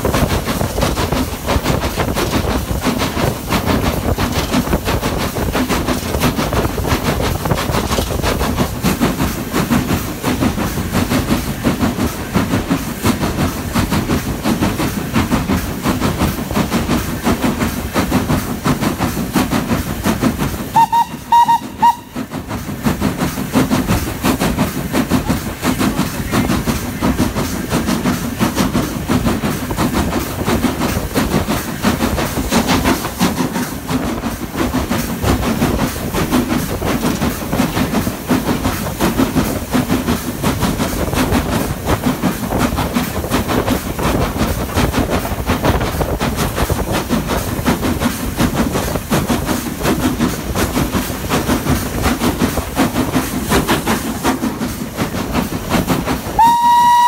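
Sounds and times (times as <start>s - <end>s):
steam hiss: 0.0s - 57.0s
steam locomotive running: 0.0s - 57.0s
wheels clacking on rail joints: 0.0s - 57.0s
train whistle toots: 20.7s - 22.3s, 56.4s - 57.0s.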